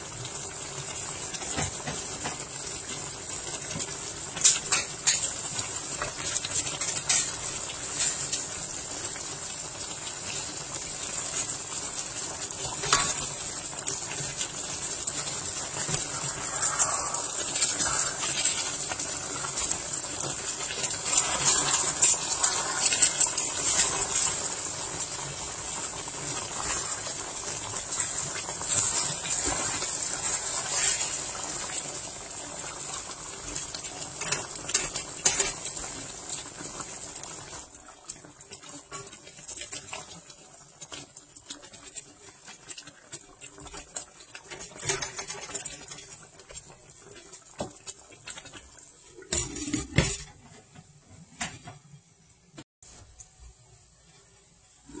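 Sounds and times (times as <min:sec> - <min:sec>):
sauce simmering and bubbling: 0:00.0 - 0:51.8
spatula stirring and tapping pan: 0:03.6 - 0:08.4, 0:12.7 - 0:31.8.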